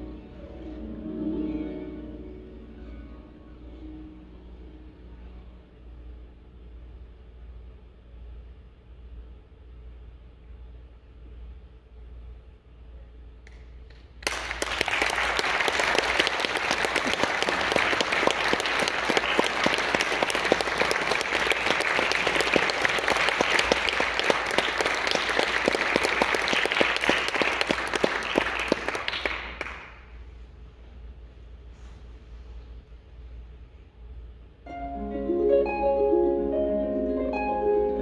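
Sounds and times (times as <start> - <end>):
audience applauding: 14.2 - 30.1.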